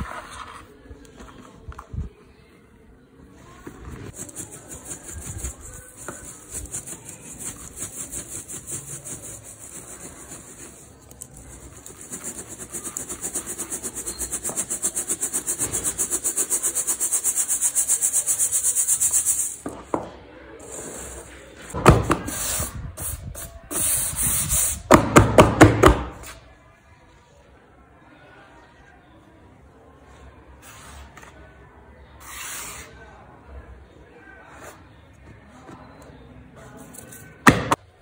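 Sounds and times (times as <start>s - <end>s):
powder sifted through mesh strainer: 4.0s - 19.6s.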